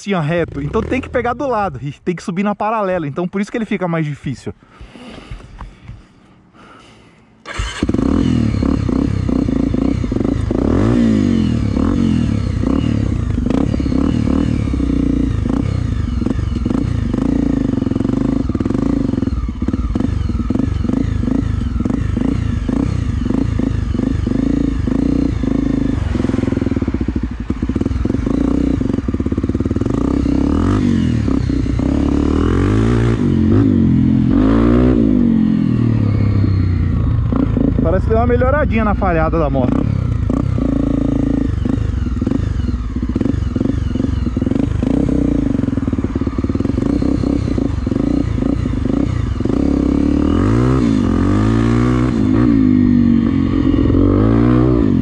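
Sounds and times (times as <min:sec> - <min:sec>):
motorcycle engine revving: 0:00.0 - 0:01.8, 0:07.4 - 0:55.0.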